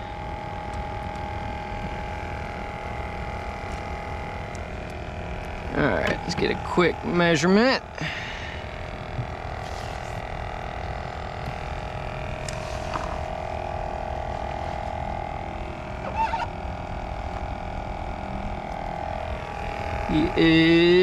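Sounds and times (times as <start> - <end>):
small electric motor humming: 0.0 - 21.0
brief pitched sound: 16.0 - 16.5.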